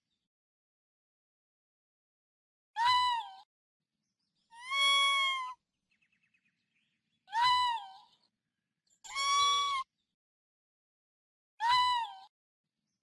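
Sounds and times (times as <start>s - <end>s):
raccoon high-pitched cries: 4.6s - 5.5s, 7.3s - 8.0s, 9.1s - 9.8s.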